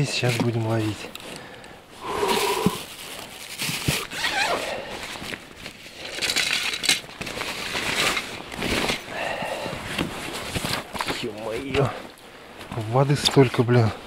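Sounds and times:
plastic bag rustling: 0:00.0 - 0:13.2
fishing gear in plastic box: 0:02.2 - 0:11.9.

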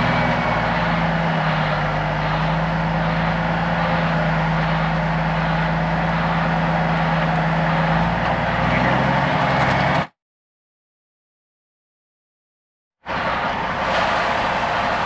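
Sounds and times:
road and wind noise: 0:00.0 - 0:10.1, 0:13.0 - 0:15.0
truck diesel engine running: 0:00.0 - 0:10.1, 0:13.1 - 0:15.0.

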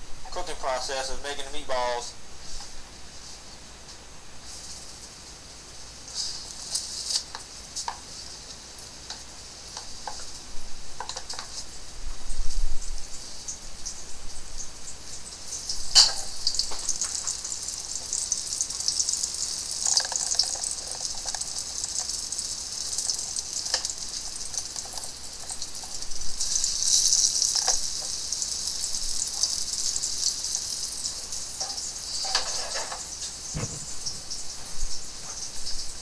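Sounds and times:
oil sizzling in a pot: 0:00.0 - 0:36.0
soft clicks and knocks: 0:33.6 - 0:34.3.

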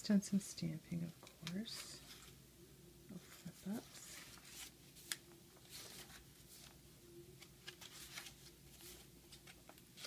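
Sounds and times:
paper pages rustling: 0:01.4 - 0:02.4, 0:03.2 - 0:06.8, 0:07.4 - 0:10.0.

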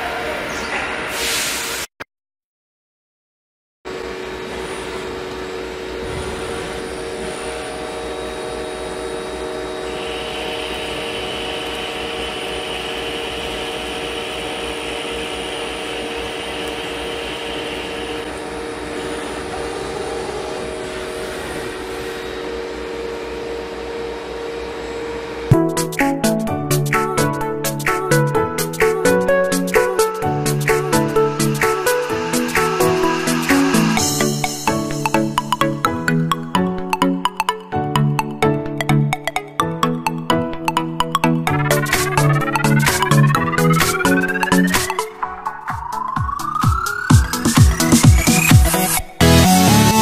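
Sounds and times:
lathe machine hum: 0:03.9 - 0:25.6, 0:29.5 - 0:35.4.

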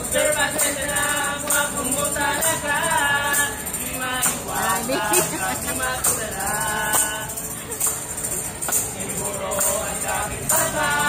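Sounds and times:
group singing birthday song: 0:00.0 - 0:07.8, 0:08.6 - 0:11.0
tambourines jingling: 0:00.0 - 0:11.0
hands clapping: 0:08.6 - 0:08.9.

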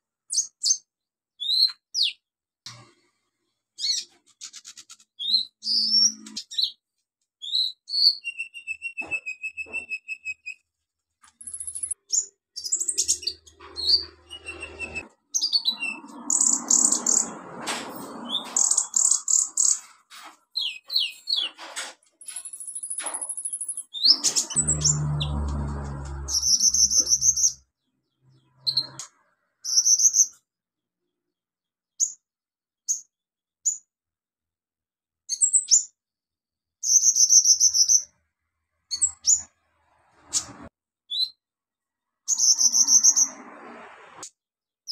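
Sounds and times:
bird singing rapid chirps and trills: 0:03.8 - 0:06.8, 0:11.3 - 0:17.4, 0:18.2 - 0:19.9, 0:22.3 - 0:30.4, 0:36.8 - 0:38.1, 0:42.3 - 0:43.4.

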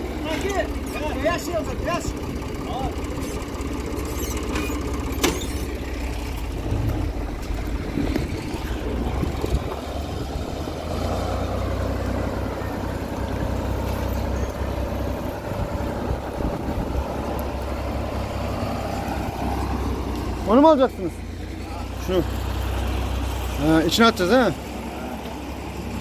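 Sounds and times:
tractor engine running: 0:00.0 - 0:26.0
metal clank: 0:04.3 - 0:08.8.

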